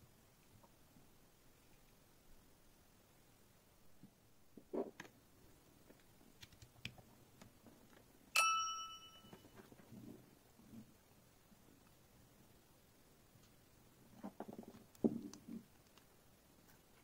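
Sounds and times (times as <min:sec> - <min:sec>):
bright electronic chime: 0:08.4 - 0:09.5.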